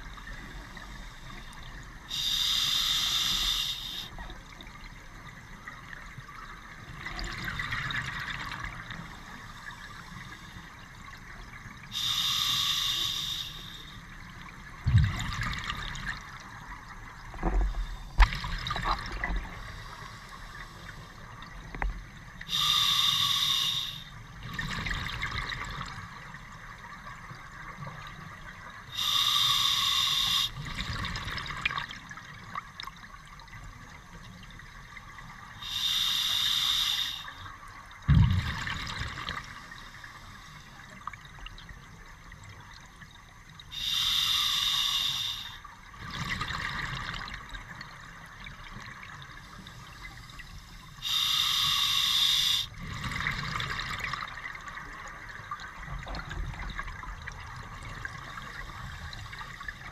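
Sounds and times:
diver breathing through regulator: 2.1s - 4.1s, 11.9s - 14.0s, 22.5s - 24.1s, 28.9s - 30.6s, 35.6s - 37.4s, 43.8s - 45.6s, 49.8s - 52.8s.

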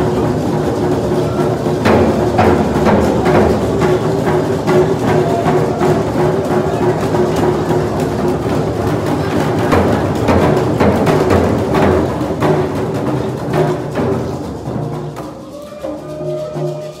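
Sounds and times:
frame drums beating: 0.0s - 17.0s
voices singing: 1.0s - 7.8s, 15.2s - 17.0s.

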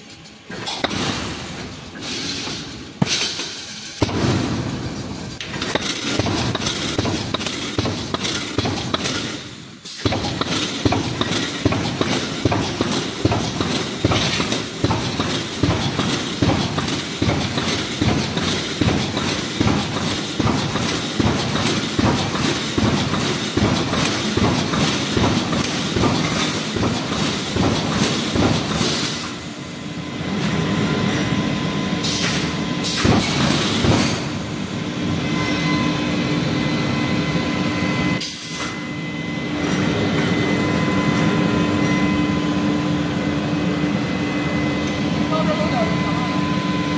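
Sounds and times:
welding machine rhythmic clatter: 0.0s - 35.1s
mechanical hum: 0.0s - 46.9s.

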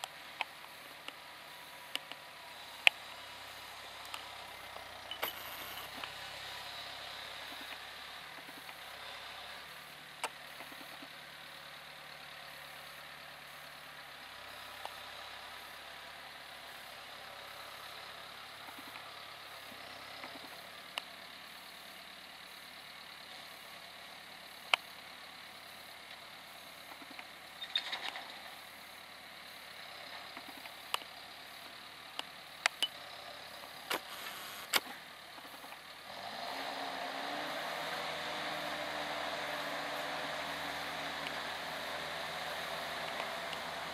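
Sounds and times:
tractor diesel engine working: 0.0s - 43.9s
sharp clicks: 32.2s - 33.0s, 33.9s - 35.8s, 43.0s - 43.7s.

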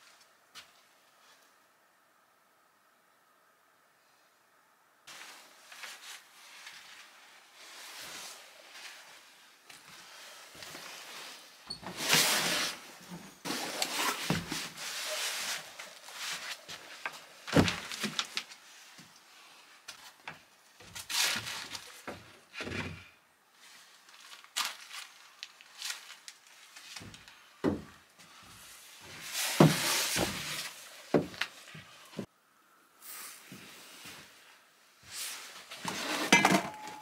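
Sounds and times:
rustling: 23.6s - 32.3s
footsteps on wooden floorboards: 27.0s - 32.3s
wooden knocks and thuds: 27.6s - 27.9s.

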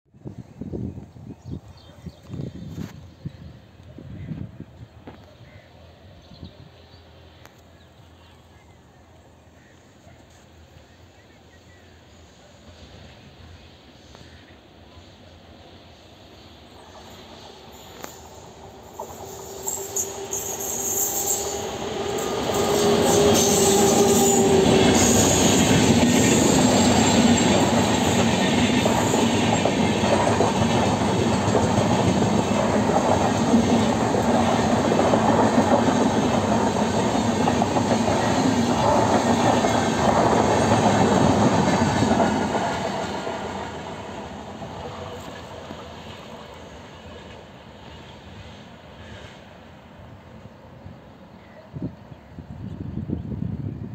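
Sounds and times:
train wheels rumbling on rails: 10.2s - 50.9s.

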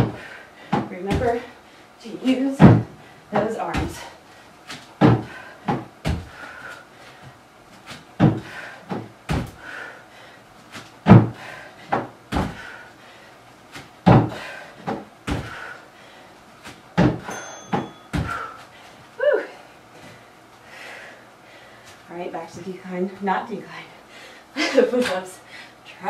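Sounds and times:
feet landing on wooden box: 0.0s - 1.4s, 2.6s - 4.1s, 4.7s - 6.4s, 7.8s - 9.6s, 10.7s - 12.7s, 13.7s - 15.7s, 16.6s - 18.6s
hard breathing: 0.0s - 2.0s, 3.9s - 7.4s, 8.2s - 13.5s, 14.1s - 17.3s, 18.1s - 22.1s, 23.7s - 24.8s.

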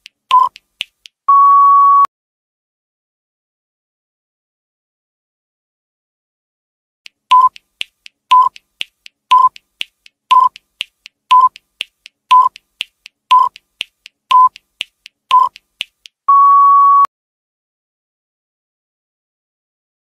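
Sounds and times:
short electronic beeps: 1.3s - 2.1s, 7.3s - 7.6s, 8.3s - 8.6s, 9.3s - 9.6s, 10.3s - 10.6s, 11.3s - 11.6s, 12.3s - 12.6s, 13.3s - 13.6s, 14.3s - 14.6s, 15.3s - 15.6s, 16.3s - 17.1s
faint ticks: 7.1s - 16.2s.

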